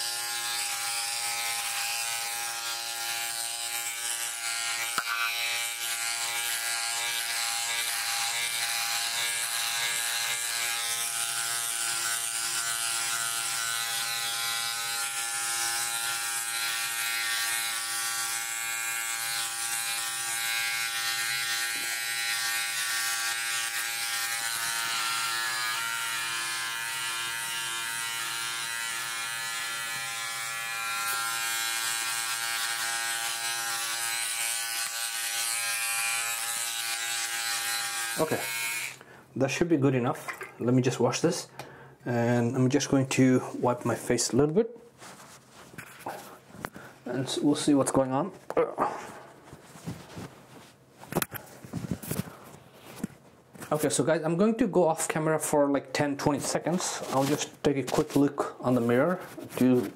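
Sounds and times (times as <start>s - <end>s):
electric trimmer buzzing: 0.0s - 39.1s.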